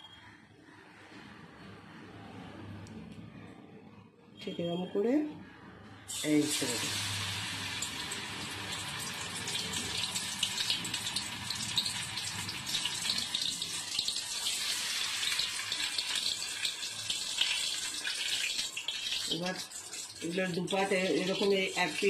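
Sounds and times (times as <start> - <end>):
fish frying in hot oil: 6.1 - 22.0.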